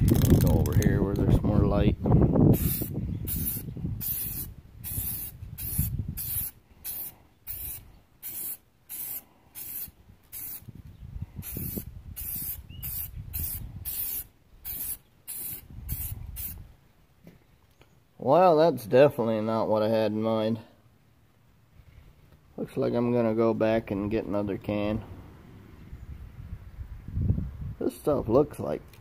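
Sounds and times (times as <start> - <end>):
aerosol spray can hissing: 2.6 - 10.6, 11.4 - 16.6.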